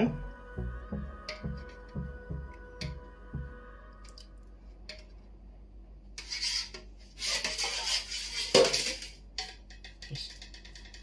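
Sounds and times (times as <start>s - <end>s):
metal spoon scraping plastic tub: 6.2s - 9.2s.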